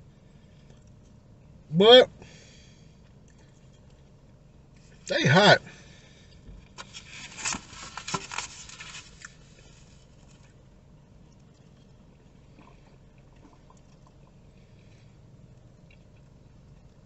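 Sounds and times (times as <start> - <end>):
food packaging rustling: 6.7 - 10.4.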